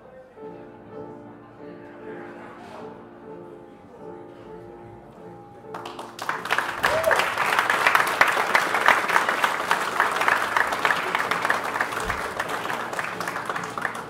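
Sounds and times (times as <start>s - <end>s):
faint jazz band: 0.0s - 14.0s
audience applauding: 5.7s - 14.0s.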